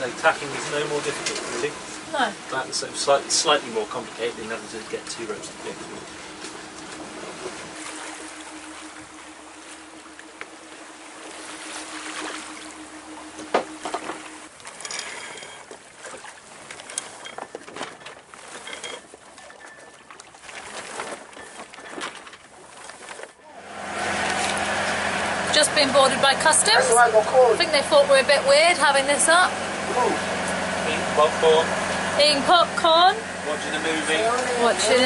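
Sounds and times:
steady low hum: 0:00.0 - 0:15.6
water rushing along hull: 0:00.0 - 0:35.0.

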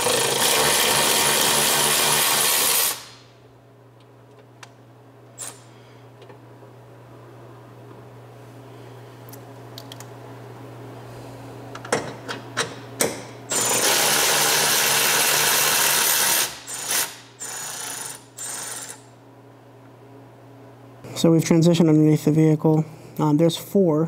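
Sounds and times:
cordless power tool running: 0:00.0 - 0:03.2, 0:13.5 - 0:19.0.

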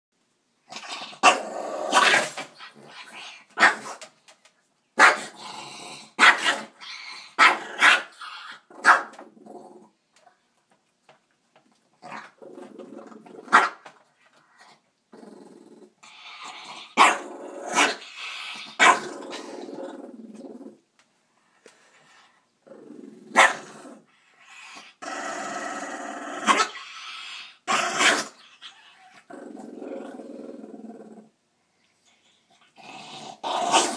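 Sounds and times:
dog growling and barking: 0:00.7 - 0:04.0, 0:05.0 - 0:10.0, 0:12.0 - 0:14.0, 0:15.1 - 0:20.8, 0:22.6 - 0:31.4, 0:32.6 - 0:33.9.

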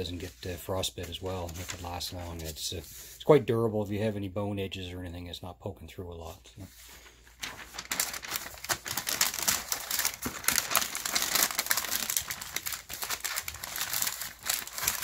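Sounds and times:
waxed paper crinkling: 0:00.0 - 0:03.3, 0:06.6 - 0:15.0.

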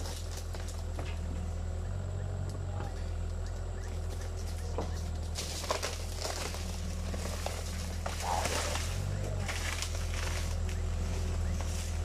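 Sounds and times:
excavator diesel engine running: 0:00.0 - 0:12.0
scraping soil: 0:04.4 - 0:12.0.

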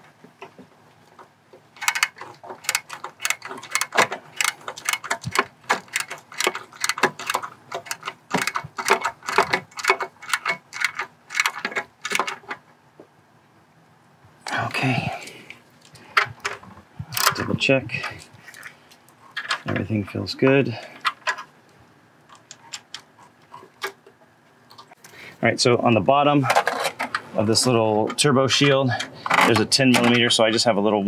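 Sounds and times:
hand ratchet clicking: 0:01.8 - 0:12.3.

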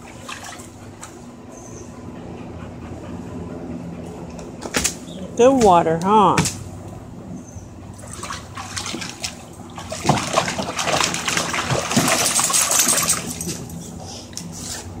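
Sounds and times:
dog splashing in water: 0:08.0 - 0:13.7.

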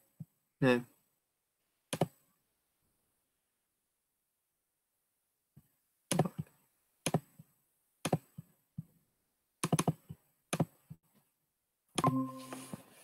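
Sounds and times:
computer keyboard keystrokes: 0:09.6 - 0:10.0.

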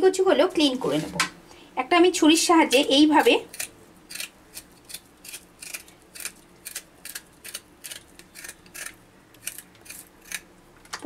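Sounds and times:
knife scraping taro skin: 0:02.7 - 0:10.5.

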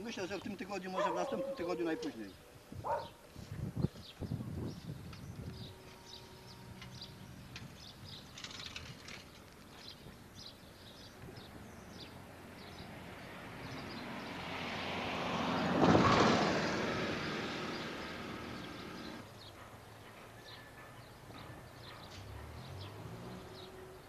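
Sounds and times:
vehicle passing by: 0:11.9 - 0:19.2, 0:22.0 - 0:24.0.

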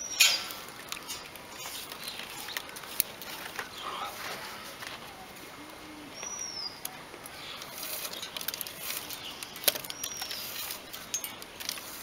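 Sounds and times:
plastic cord rustling: 0:00.5 - 0:05.1, 0:07.5 - 0:12.0
bamboo strips clicking: 0:07.6 - 0:12.0.

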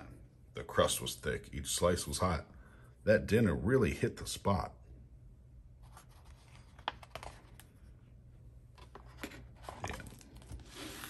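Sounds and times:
book pages turning: 0:05.8 - 0:08.0, 0:08.7 - 0:11.0.

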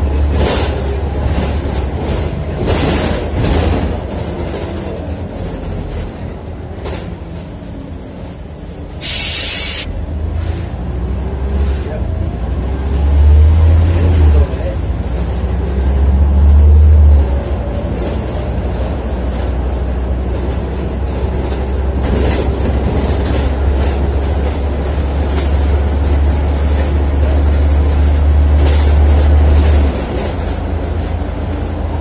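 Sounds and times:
bus body rattling: 0:00.0 - 0:10.2, 0:10.8 - 0:32.0
bus diesel engine drone: 0:00.0 - 0:32.0.

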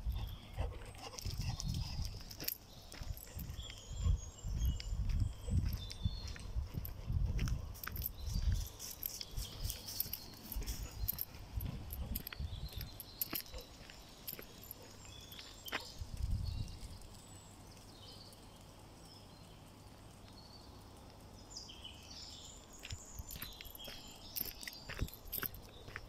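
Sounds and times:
small birds chirping: 0:00.0 - 0:26.0
footsteps on dirt path: 0:01.2 - 0:16.0, 0:22.7 - 0:26.0.

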